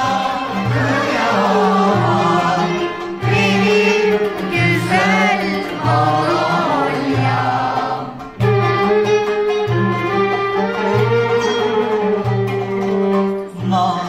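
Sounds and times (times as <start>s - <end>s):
woman singing with vibrato: 0.0s - 8.2s, 13.5s - 14.0s
choir singing: 0.0s - 8.4s
instrumental ensemble: 0.0s - 14.0s.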